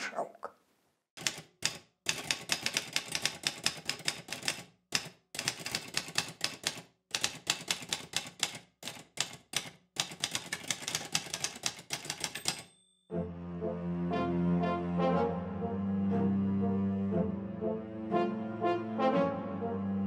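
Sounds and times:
typewriter key strikes: 1.2s - 12.8s.

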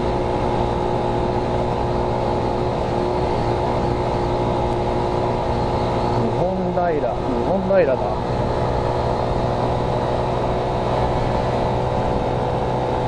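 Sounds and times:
motorcycle engine cruising: 0.0s - 13.0s
wind and road noise: 0.0s - 13.0s.

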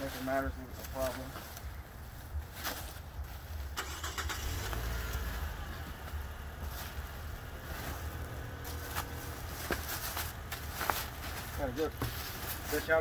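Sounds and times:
cardboard and bubble wrap rustling: 0.0s - 3.7s, 5.8s - 13.0s
steady low rumble: 4.6s - 13.0s.

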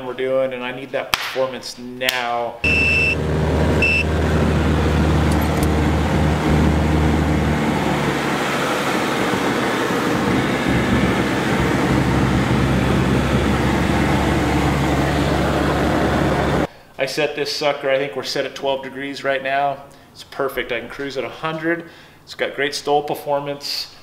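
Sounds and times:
light aircraft engine and propeller: 2.7s - 16.7s.

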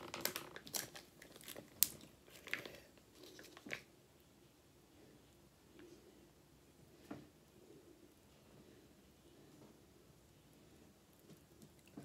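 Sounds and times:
paper packet crinkling and tearing: 0.0s - 3.9s.

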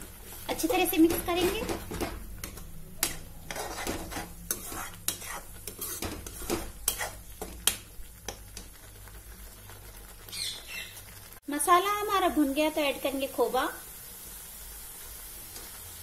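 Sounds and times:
faint sizzle: 0.0s - 16.0s
metal spoon scraping pan: 3.0s - 7.2s.

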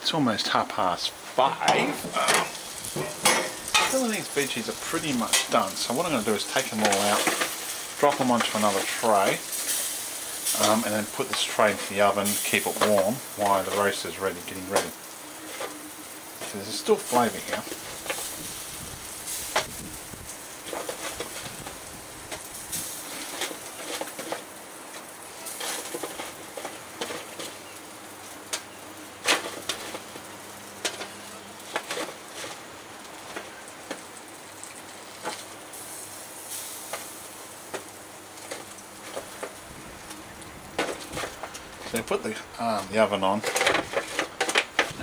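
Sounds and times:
barbecue sizzling: 0.0s - 45.0s
metal tongs clicking on foil trays: 1.7s - 15.8s, 22.3s - 27.6s, 28.5s - 30.2s, 30.8s - 32.6s, 40.8s - 45.0s.

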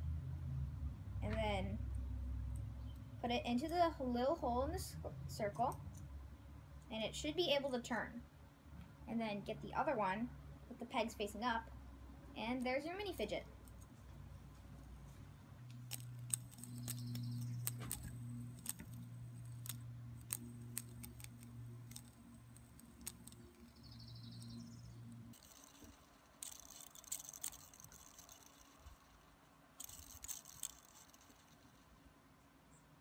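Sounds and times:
low steady hum: 0.0s - 33.0s
plastic fidget spinner clicks: 15.7s - 31.9s
plastic bricks rattling: 25.4s - 29.0s.

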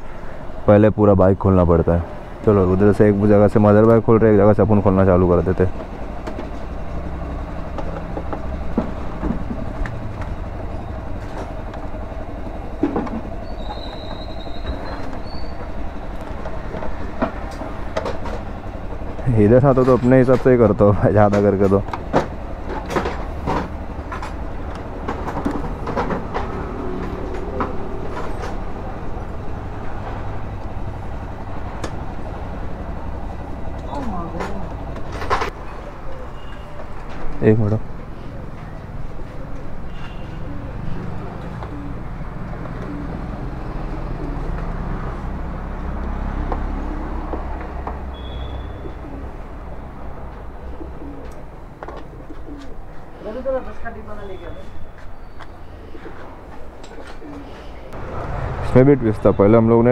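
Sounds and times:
low rumble of traffic: 0.0s - 59.9s
low street hum: 0.0s - 59.9s
birds calling: 6.9s - 16.8s, 22.0s - 58.0s.

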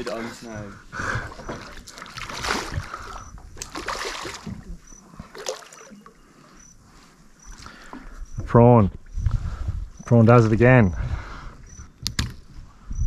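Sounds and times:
water splashes: 0.0s - 6.6s.

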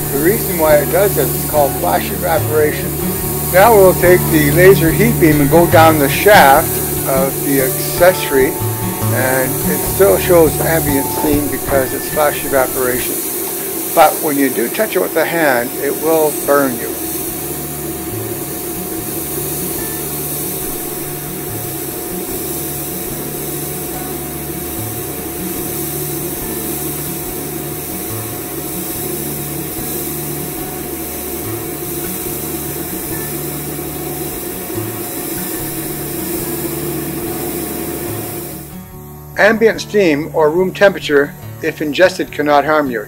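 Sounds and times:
steady machine hum: 0.0s - 38.8s
steam hissing: 0.0s - 38.8s.

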